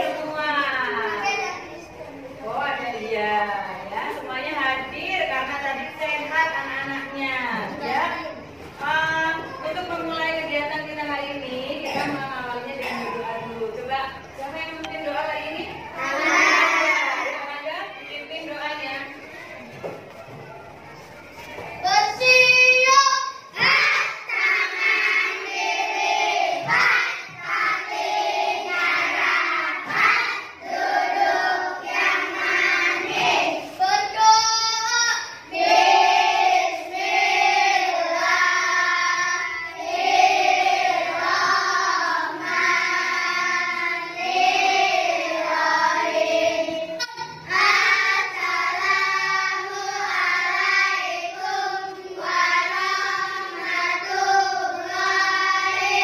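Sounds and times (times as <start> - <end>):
children singing in unison: 16.0 - 17.3, 22.8 - 56.0.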